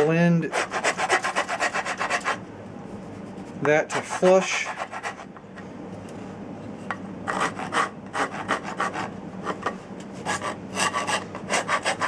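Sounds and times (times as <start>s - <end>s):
file rasping wood: 0.0s - 2.4s, 3.9s - 5.3s, 7.3s - 12.0s.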